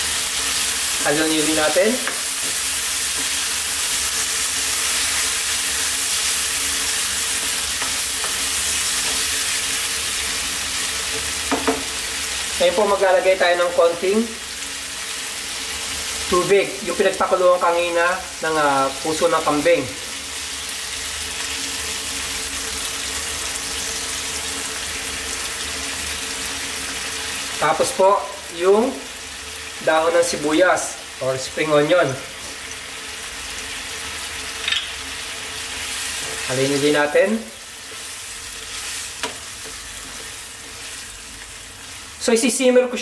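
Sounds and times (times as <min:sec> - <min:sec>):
meat sizzling in a wok: 0:00.0 - 0:43.0
spatula scraping a pan: 0:37.8 - 0:41.4.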